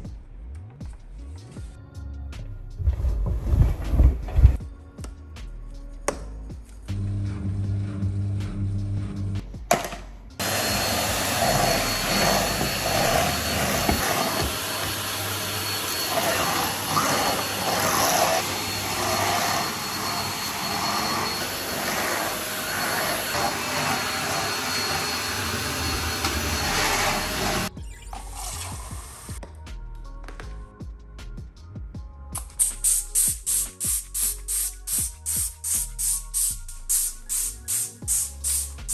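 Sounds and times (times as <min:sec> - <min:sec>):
stick vacuum cleaner running: 0:09.8 - 0:27.7.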